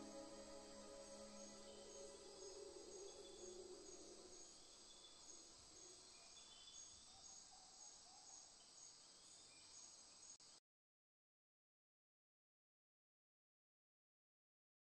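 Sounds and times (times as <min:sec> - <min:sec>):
background music: 0:00.0 - 0:04.7
crickets chirping: 0:00.0 - 0:10.6.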